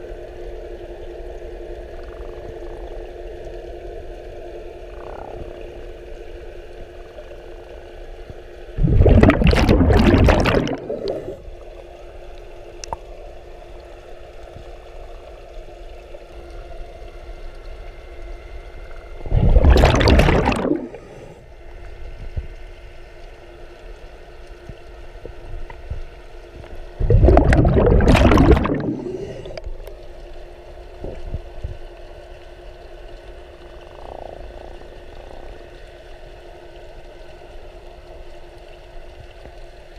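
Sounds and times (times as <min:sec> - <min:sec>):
underwater hum: 0:00.0 - 0:39.9
diver's breath bubbling: 0:08.8 - 0:11.6, 0:19.2 - 0:21.5, 0:27.0 - 0:29.7.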